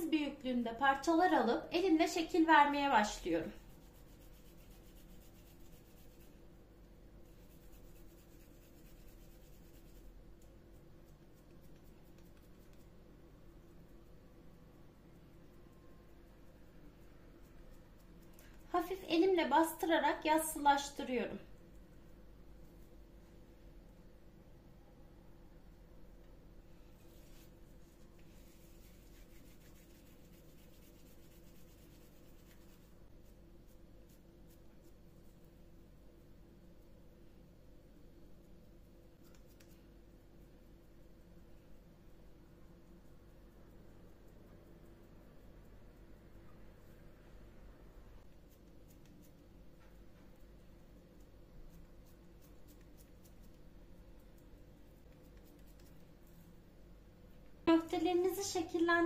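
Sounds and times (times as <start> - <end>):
low steady hum: 0.0 - 59.0
wet hands rubbing meat: 3.6 - 6.4, 7.3 - 13.0, 26.9 - 35.5
hands rolling minced meat: 27.0 - 35.1.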